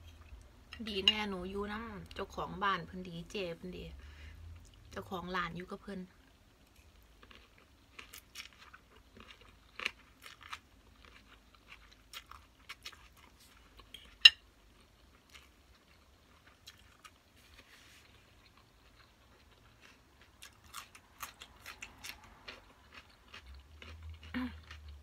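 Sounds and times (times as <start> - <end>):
person chewing crunchy cucumber: 6.9 - 25.0.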